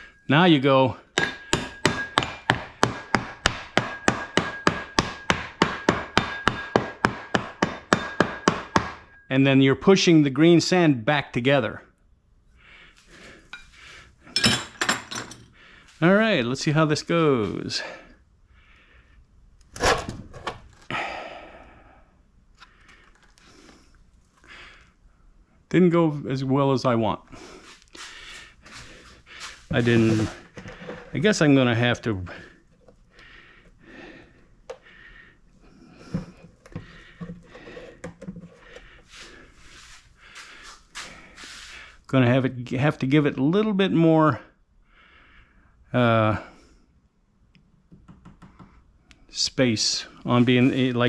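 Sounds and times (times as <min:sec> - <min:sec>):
rapping tool tapping on mold: 0:01.2 - 0:09.0
faint rustling and small clicks: 0:22.5 - 0:24.4
sand scraping and crumbling: 0:28.0 - 0:30.4, 0:50.3 - 0:51.0.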